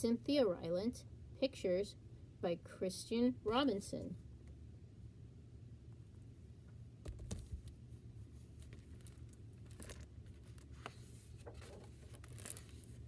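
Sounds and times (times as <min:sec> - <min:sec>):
pages rustling: 0:07.1 - 0:07.8, 0:08.4 - 0:13.0.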